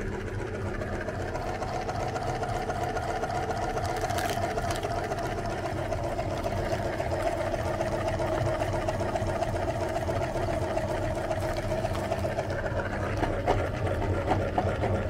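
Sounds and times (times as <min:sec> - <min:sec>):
electric meat grinder motor humming: 0:00.0 - 0:15.0.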